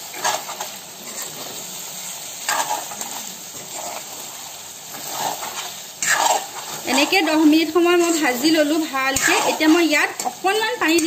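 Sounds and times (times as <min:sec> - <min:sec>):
frying sizzle: 0:00.0 - 0:11.0
spatula scraping metal pan: 0:02.4 - 0:04.3, 0:04.9 - 0:11.0.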